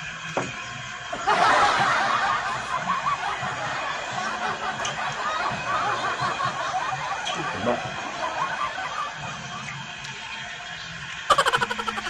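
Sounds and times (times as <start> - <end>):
people laughing: 1.2 - 10.0, 11.3 - 12.0.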